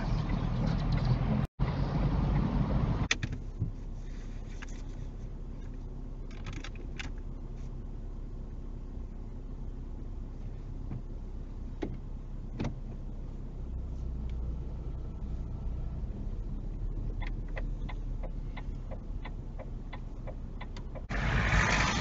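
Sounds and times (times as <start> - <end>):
car engine idling: 0.0 - 22.0
turn indicator ticking: 16.5 - 21.1.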